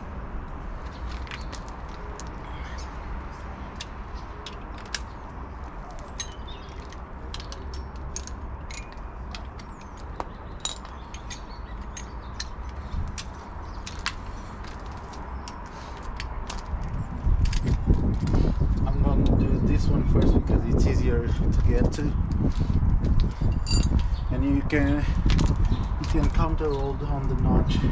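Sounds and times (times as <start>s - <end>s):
hand tools clicking on metal: 5.9s - 14.2s.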